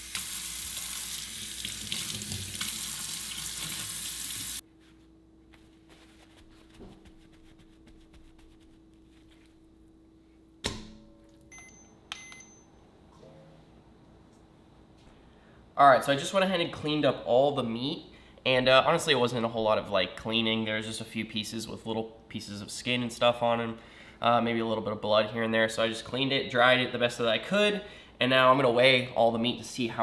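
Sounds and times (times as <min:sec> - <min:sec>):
faucet running into metal sink: 0:00.0 - 0:04.6
paper towel rustling: 0:04.6 - 0:09.9
kitchen scale beeps: 0:11.5 - 0:12.8.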